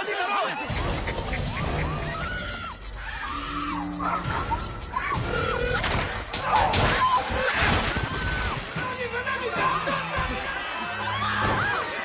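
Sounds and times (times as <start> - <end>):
film music: 0.6 - 8.0, 8.6 - 12.0
crashing and crackling hits: 4.2 - 10.6.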